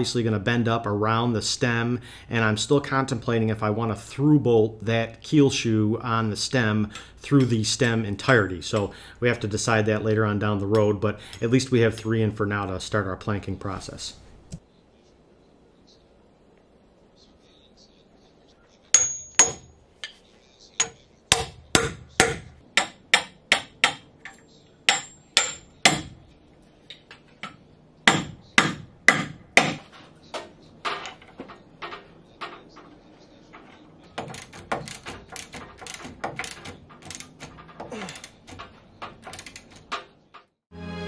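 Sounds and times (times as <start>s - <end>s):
hammer striking steel bolts: 19.0s - 20.2s, 20.8s - 26.2s, 26.9s - 32.9s, 33.7s - 40.5s.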